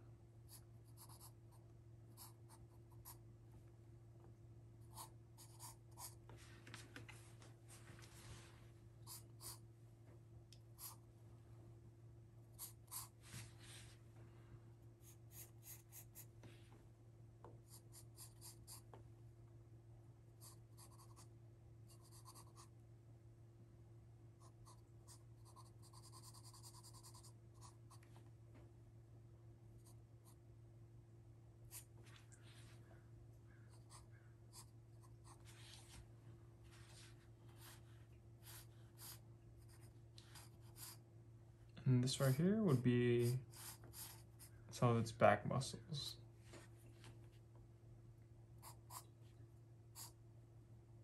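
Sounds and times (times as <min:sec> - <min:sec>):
faint low hum: 0:00.0 - 0:51.0
pencil scratching on paper: 0:00.5 - 0:01.4, 0:04.9 - 0:06.2, 0:15.0 - 0:16.3, 0:21.9 - 0:22.7, 0:24.4 - 0:27.8, 0:38.4 - 0:41.0, 0:42.1 - 0:44.5.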